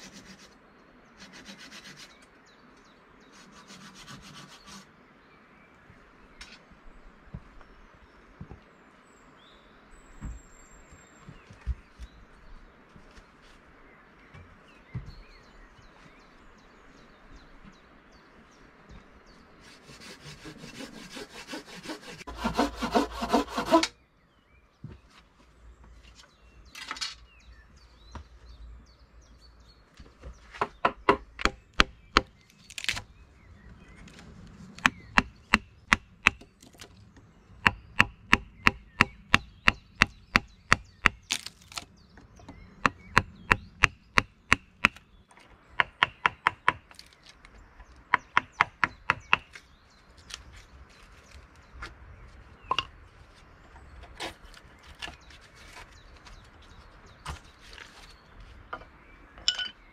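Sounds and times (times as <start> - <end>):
hand sawing through wood: 0.0 - 0.6, 1.2 - 2.2, 3.3 - 4.9, 19.6 - 23.9.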